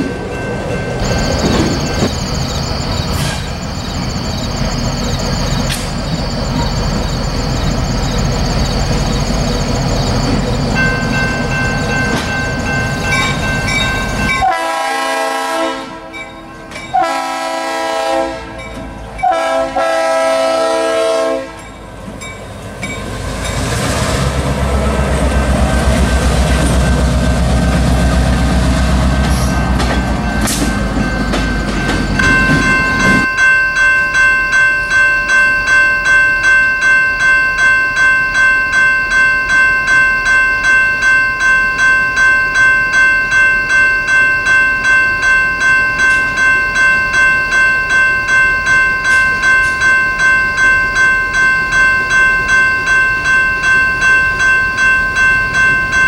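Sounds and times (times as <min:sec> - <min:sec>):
locomotive engine rumble: 0:00.0 - 0:14.7, 0:21.6 - 0:33.3
train wheel noise: 0:00.0 - 0:56.0
train air horn blasts: 0:14.4 - 0:16.1, 0:17.0 - 0:18.6, 0:19.2 - 0:21.6.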